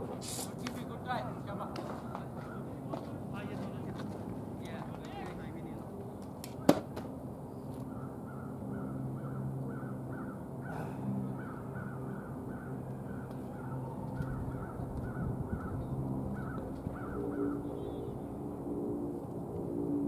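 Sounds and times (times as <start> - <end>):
steady low hum: 7.1 - 20.0.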